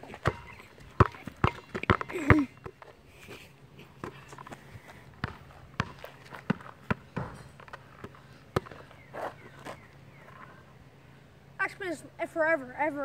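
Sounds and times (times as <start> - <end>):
basketball bouncing on asphalt: 0.0 - 3.0, 4.0 - 10.3.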